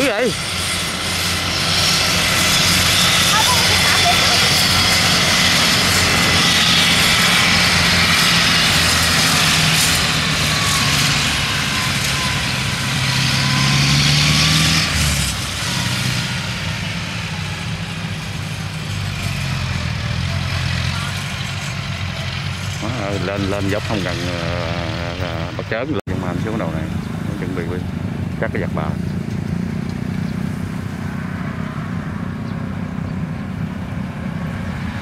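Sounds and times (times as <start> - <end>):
threshing machinery whirring: 0.0 - 30.2
diesel engine hum: 0.0 - 35.0.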